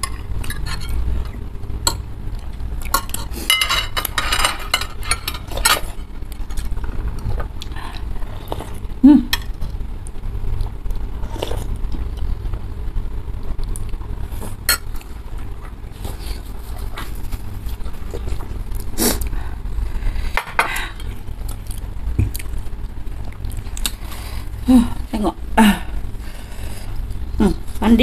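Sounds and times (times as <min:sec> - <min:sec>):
cutlery clinking on ceramic bowls: 0:00.0 - 0:01.0.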